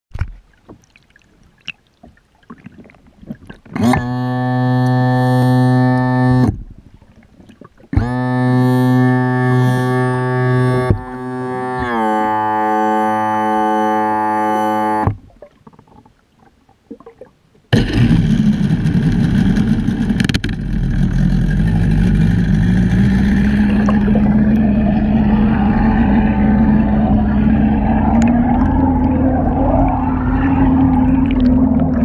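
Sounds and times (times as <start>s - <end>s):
propeller churning water bubbles: 0.1s - 5.1s, 15.1s - 32.0s
outboard motor rumble underwater: 0.1s - 32.0s
synthesizer music: 23.0s - 32.0s.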